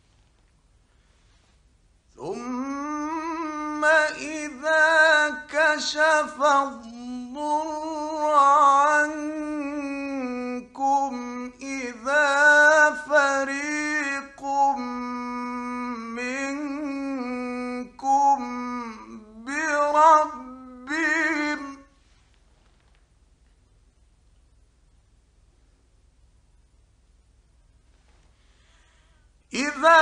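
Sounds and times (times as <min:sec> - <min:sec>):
man chanting melodically: 0:02.2 - 0:21.9, 0:29.5 - 0:30.0.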